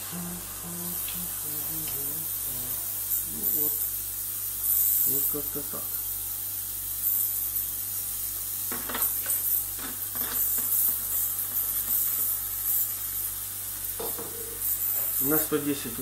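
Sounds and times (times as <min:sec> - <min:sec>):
ultrasonic cleaner buzzing: 0:00.0 - 0:16.0.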